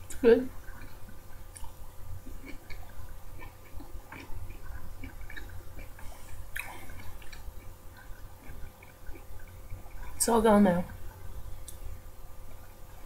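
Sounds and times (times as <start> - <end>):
steady low hum: 0.0 - 13.0
mouth chewing wetly: 0.5 - 10.2.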